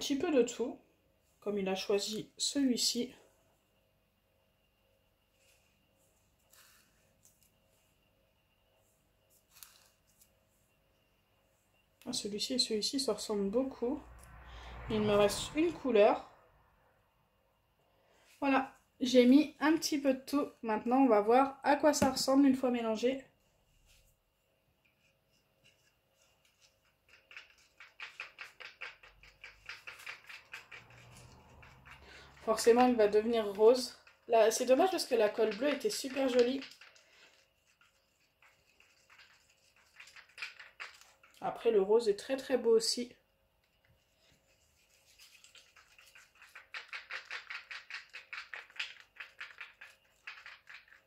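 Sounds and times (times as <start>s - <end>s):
slime stirred in plastic bowl: 25.1s - 41.6s, 44.0s - 51.0s.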